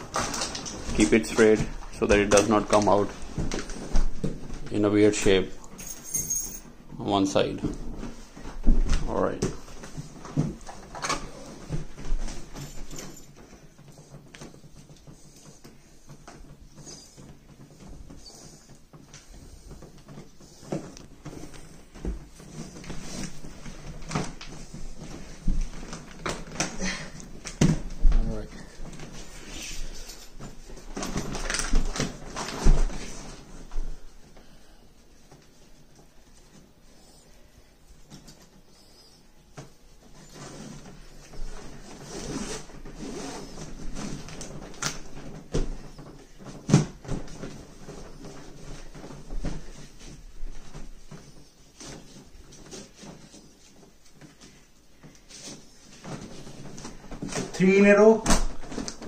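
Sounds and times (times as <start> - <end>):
plastic bag rustling: 0.0 - 6.8, 7.4 - 59.0.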